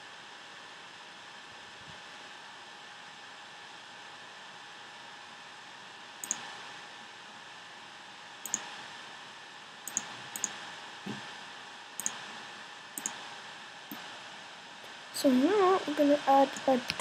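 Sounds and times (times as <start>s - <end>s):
faint hum: 0.0s - 17.0s
computer mouse clicks: 6.2s - 6.5s, 8.4s - 8.7s, 9.9s - 10.6s, 12.0s - 12.2s, 13.0s - 13.2s.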